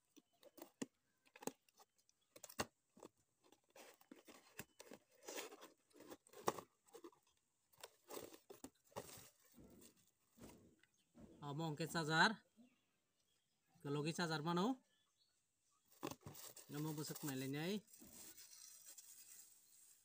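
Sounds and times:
cardboard box rustling and scraping: 3.7s - 10.6s, 15.9s - 20.0s.

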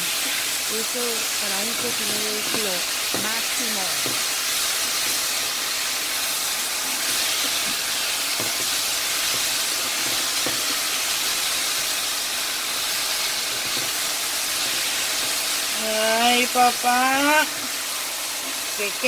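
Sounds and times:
vegetables sizzling in a frying pan: 0.0s - 19.0s
spatula scraping a pan: 1.5s - 11.8s.

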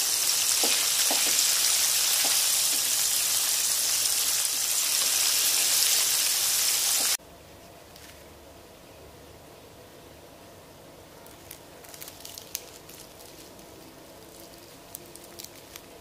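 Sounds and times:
chicken deep-frying in hot oil: 0.0s - 7.2s.

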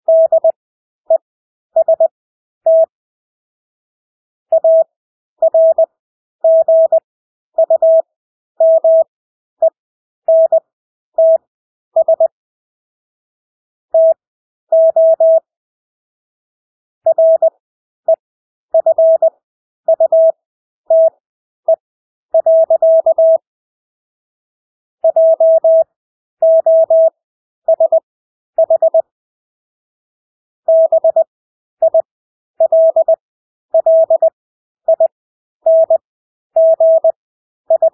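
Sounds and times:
morse code beeps: 0.1s - 1.2s, 2.7s - 2.9s, 4.5s - 5.9s, 6.5s - 7.0s, 7.6s - 8.0s, 8.6s - 10.6s, 12.0s - 12.4s, 14.0s - 14.2s, 14.8s - 15.4s, 17.1s - 17.5s, 18.8s - 19.3s, 19.9s - 21.8s, 22.4s - 23.4s, 25.0s - 27.1s, 27.7s - 28.0s, 28.6s - 29.1s, 30.7s - 33.2s, 33.8s - 35.1s, 35.7s - 36.0s, 36.6s - 37.9s.

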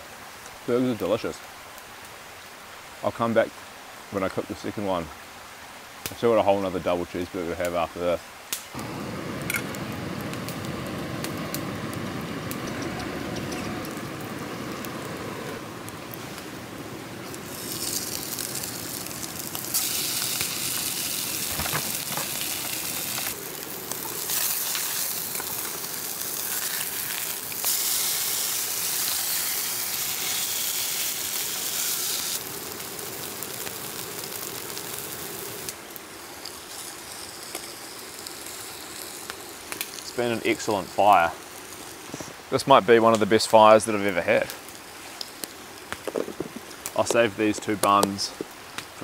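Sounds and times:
burger patties sizzling in a pan: 17.2s - 42.3s.

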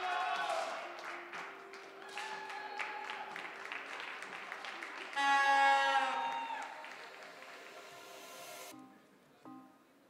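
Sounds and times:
background music with held notes: 0.1s - 6.0s, 6.7s - 10.0s
light clapping: 0.4s - 5.2s.

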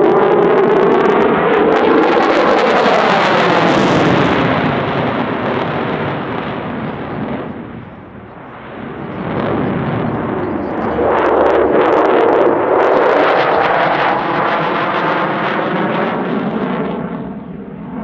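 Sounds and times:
jet engine roar: 0.0s - 18.0s.

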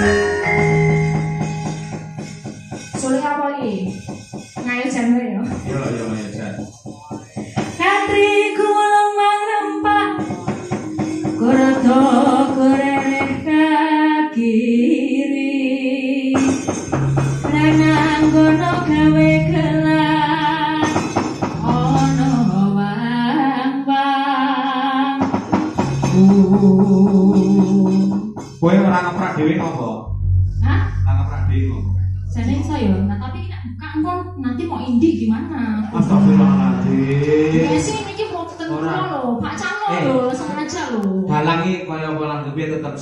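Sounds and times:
gamelan accompaniment: 0.0s - 8.6s, 9.7s - 13.6s, 16.4s - 22.8s, 30.1s - 40.7s
woman singing into a microphone: 7.6s - 16.7s, 17.4s - 25.4s, 37.6s - 41.5s.

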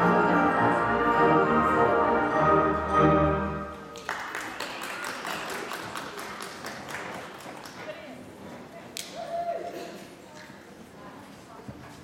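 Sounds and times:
orchestral music: 0.0s - 4.0s.

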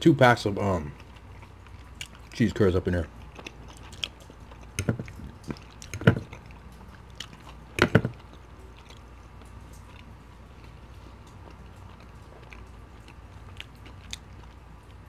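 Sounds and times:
chewing with wet smacks: 0.5s - 15.0s.

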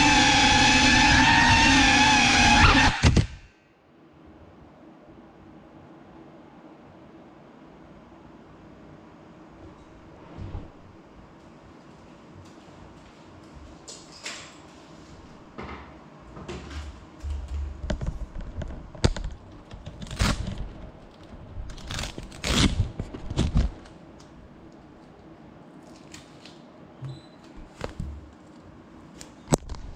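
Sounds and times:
faint room hum: 3.0s - 29.9s
knocks and thumps: 15.6s - 19.8s.

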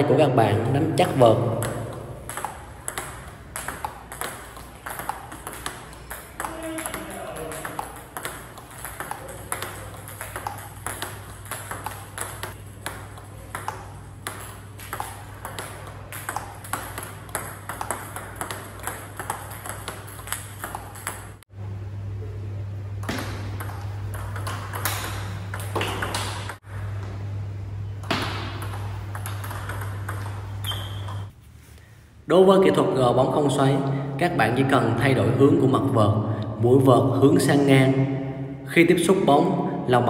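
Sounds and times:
steady low hum: 0.0s - 40.0s
ping pong ball bouncing on table: 1.0s - 21.4s, 23.0s - 26.8s, 28.0s - 31.3s
ping pong ball hitting bat: 1.0s - 21.4s, 23.0s - 27.0s, 28.0s - 31.3s.

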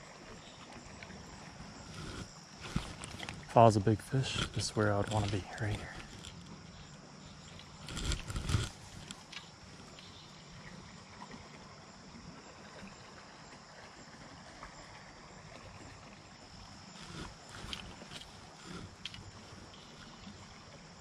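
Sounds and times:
faint high insect-like hum: 0.0s - 21.0s
flowing creek: 0.0s - 21.0s
rustling: 1.8s - 3.6s.

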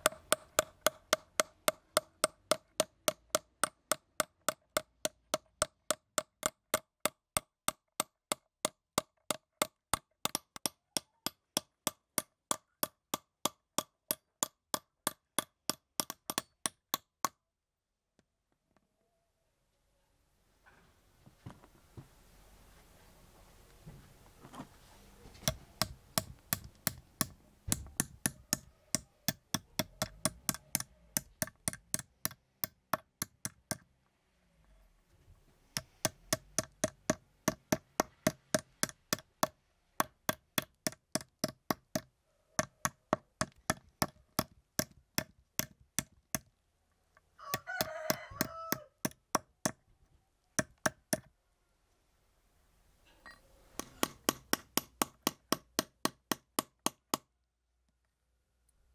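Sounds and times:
hammer tapping metal on wood: 0.0s - 17.4s, 25.4s - 33.9s, 35.8s - 46.5s, 47.5s - 49.8s, 50.6s - 51.3s, 53.8s - 57.3s
rooster crowing: 47.4s - 49.0s.

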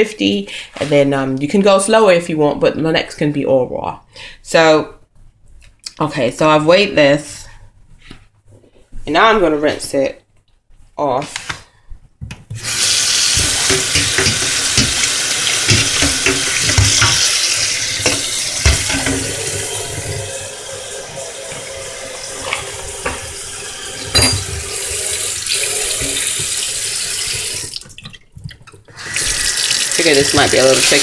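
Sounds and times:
tap water running into bowl: 12.6s - 31.0s
sharp knocks: 18.0s - 19.4s.

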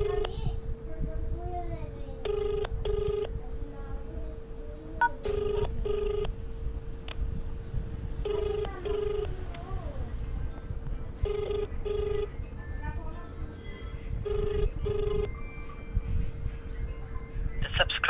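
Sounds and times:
telephone ringback tone: 2.2s - 3.4s, 5.0s - 6.4s, 8.2s - 9.5s, 11.2s - 12.4s, 13.6s - 15.8s.

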